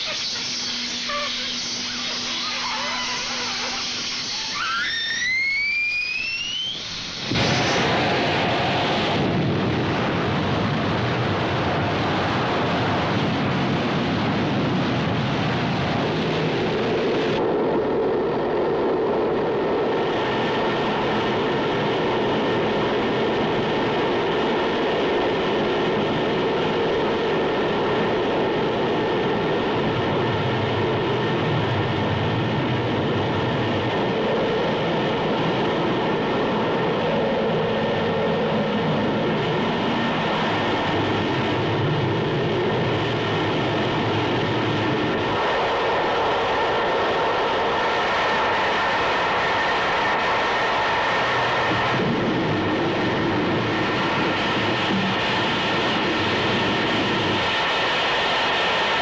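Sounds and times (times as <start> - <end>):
steady tones: 0.0 - 7.5
rising whine: 0.0 - 59.0
roar of gas rushing out: 6.6 - 10.4.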